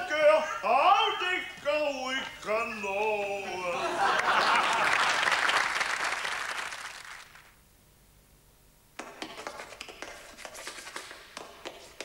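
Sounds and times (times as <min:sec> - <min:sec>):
audience applause: 0:04.0 - 0:07.5.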